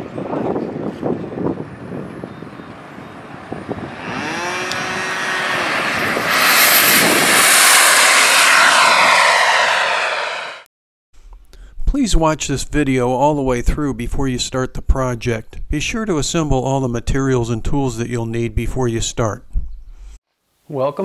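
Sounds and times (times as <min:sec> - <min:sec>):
model airplane motor whining: 0:03.8 - 0:09.9.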